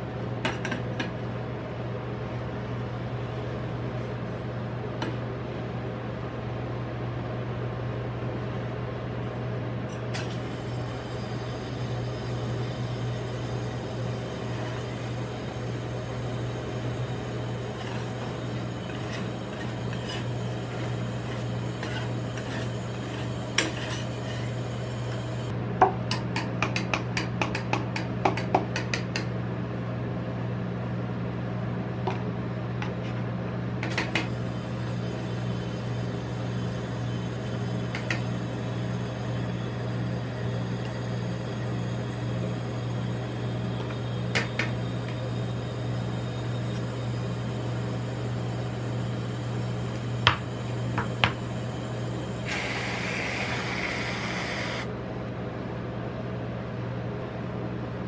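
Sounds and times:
refrigeration unit hum: 0.0 - 58.0
metal spatulas scraping steel plate: 21.8 - 24.6.

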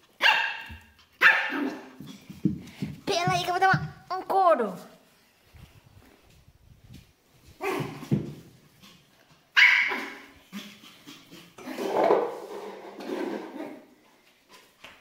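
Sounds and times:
puppy barking: 0.2 - 1.9, 9.6 - 10.3.

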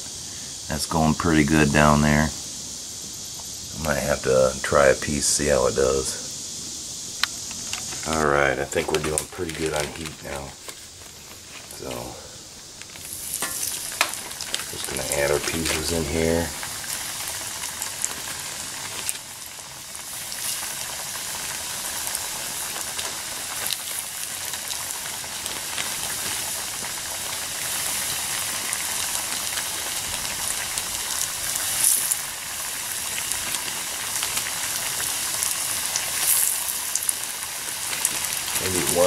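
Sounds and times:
fish sizzling in hot oil: 0.0 - 39.0
oil popping and spitting: 20.0 - 39.0.

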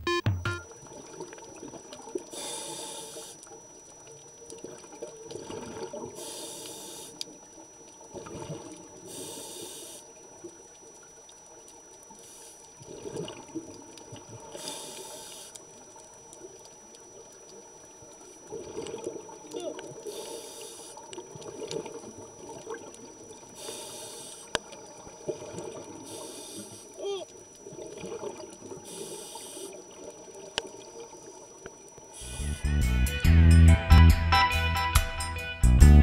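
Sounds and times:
underwater bubbling and gurgling: 0.6 - 32.4
diver breathing through regulator: 2.3 - 3.4, 6.2 - 7.2, 9.1 - 10.1, 14.6 - 15.6, 20.0 - 21.0, 23.6 - 24.5, 26.0 - 26.9, 28.8 - 29.8, 32.2 - 32.6.

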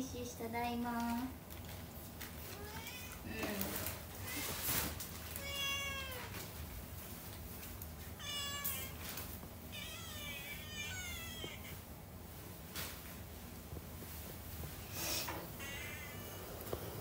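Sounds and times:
kitten meowing: 5.4 - 6.3, 8.2 - 9.0, 9.7 - 11.8, 15.5 - 16.4.

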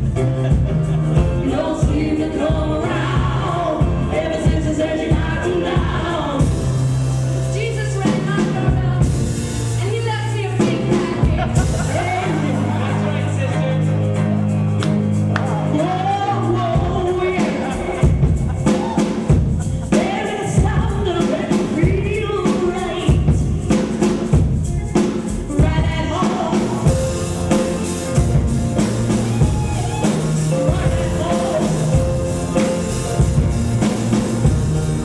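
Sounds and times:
band playing: 0.0 - 35.0
drum kit beat: 0.0 - 35.0
voices singing: 1.2 - 6.8.

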